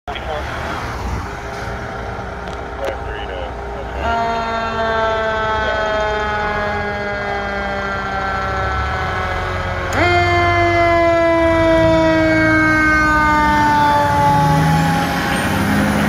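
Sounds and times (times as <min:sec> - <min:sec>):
fire engine siren winding: 0:04.1 - 0:15.7.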